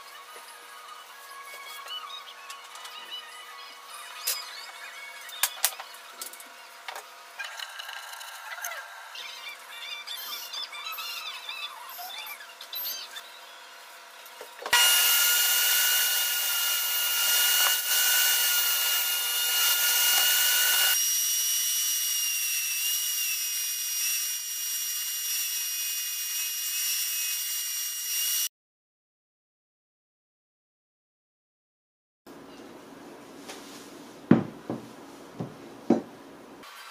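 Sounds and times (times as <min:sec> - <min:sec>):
table saw whining: 0:14.7 - 0:28.5.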